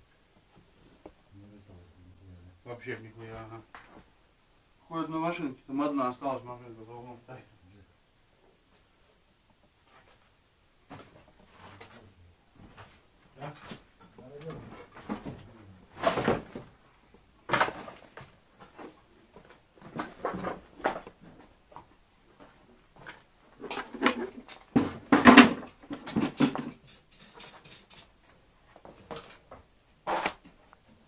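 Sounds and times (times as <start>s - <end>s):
junk knocking and clattering: 23.6s - 28.1s.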